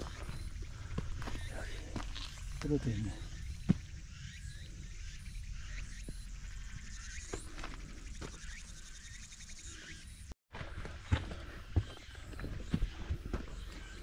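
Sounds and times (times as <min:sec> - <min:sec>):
footsteps on rocky trail: 0:00.0 - 0:04.0, 0:06.0 - 0:08.6, 0:10.5 - 0:14.0.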